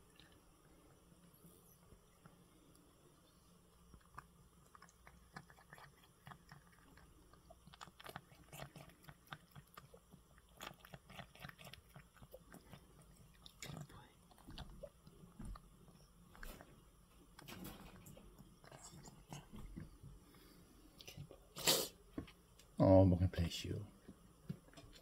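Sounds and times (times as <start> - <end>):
cat chewing wet food: 1.9 - 21.2.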